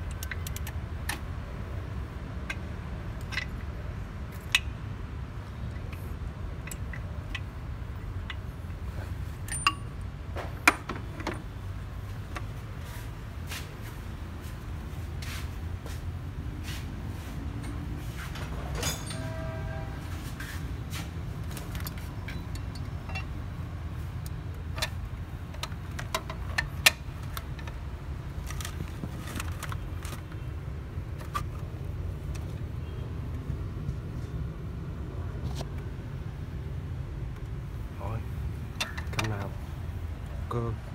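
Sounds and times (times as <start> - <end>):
metallic clicks and taps of tools: 0.0 - 1.2, 2.4 - 3.7, 6.6 - 8.4, 9.4 - 9.9, 21.4 - 23.4, 24.2 - 27.8.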